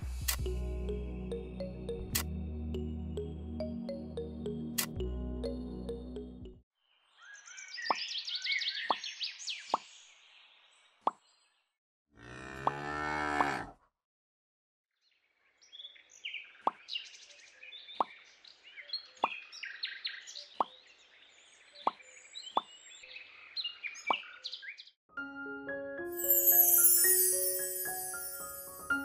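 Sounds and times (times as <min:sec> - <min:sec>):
cow mooing: 0:12.2 - 0:13.7
high chirps: 0:26.2 - 0:29.0.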